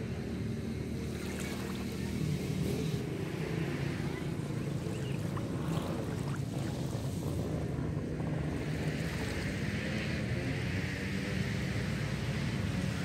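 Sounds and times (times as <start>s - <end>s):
wind rumble on microphone: 0.0s - 13.0s
small waves lapping: 1.0s - 2.3s, 4.0s - 7.5s.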